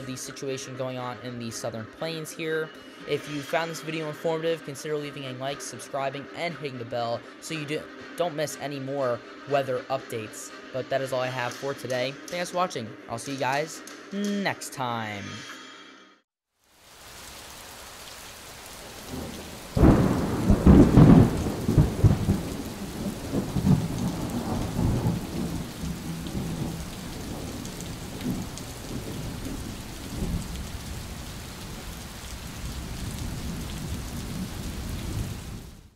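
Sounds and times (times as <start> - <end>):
steady rain: 16.6 - 35.9
thunder clap rumbling: 18.9 - 35.8.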